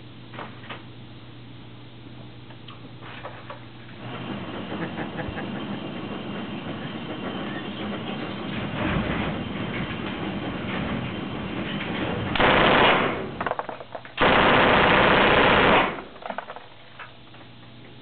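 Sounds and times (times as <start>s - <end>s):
submachine gun firing full auto: 12.4s - 13.6s, 14.2s - 16.2s.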